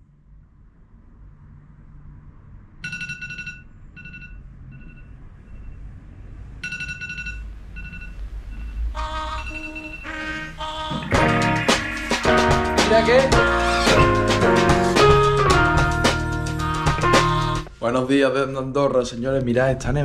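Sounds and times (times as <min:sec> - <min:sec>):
phone alarm electronic trill: 0:06.6 - 0:15.8
music: 0:09.0 - 0:18.4.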